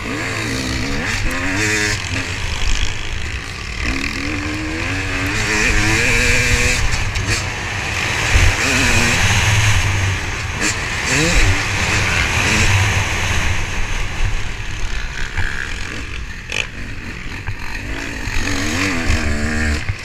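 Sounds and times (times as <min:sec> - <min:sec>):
motocross bike engine revving: 0:00.0 - 0:20.0
wind rushing over microphone: 0:04.4 - 0:20.0.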